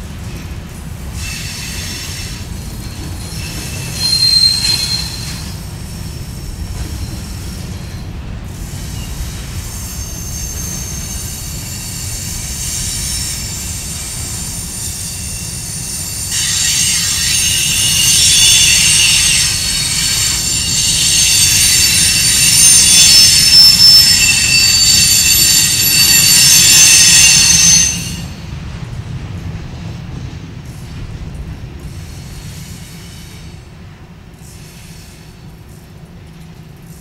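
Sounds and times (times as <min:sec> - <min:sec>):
freight train rumbling past: 0:00.0 - 0:37.0
high-pitched wheel squeal: 0:03.2 - 0:05.6, 0:09.7 - 0:28.4.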